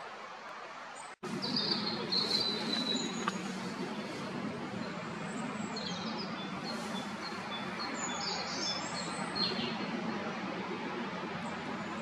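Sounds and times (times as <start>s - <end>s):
small songbirds chirping: 1.0s - 10.0s.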